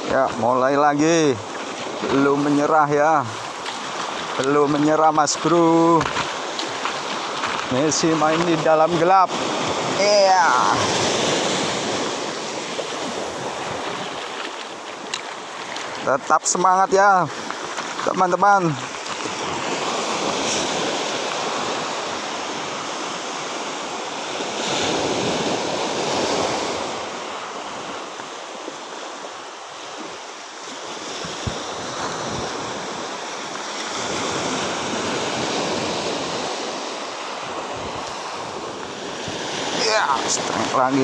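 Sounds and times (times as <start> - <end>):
sea waves washing on shore: 0.0 - 41.0.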